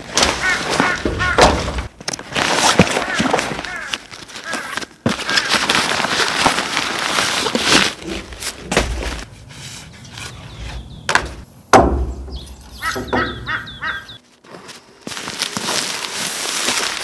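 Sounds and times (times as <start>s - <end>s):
bird short repeated calls: 12.3s - 14.2s.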